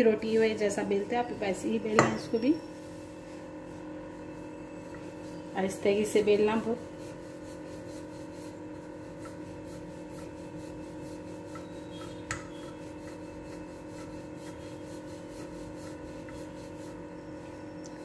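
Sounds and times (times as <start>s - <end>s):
rolling pin rubbing over dough: 0.0s - 17.8s
steady hum: 0.0s - 18.0s.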